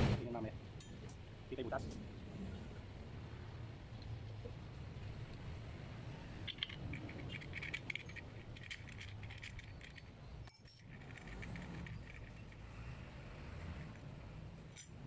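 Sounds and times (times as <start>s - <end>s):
steel parts clinking: 6.4s - 12.7s, 14.6s - 15.0s.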